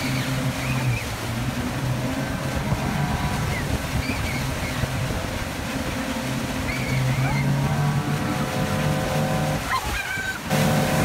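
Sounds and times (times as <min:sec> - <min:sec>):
boat engine running: 0:00.0 - 0:11.0
churning wake: 0:00.0 - 0:11.0
wind across microphone: 0:02.3 - 0:06.0.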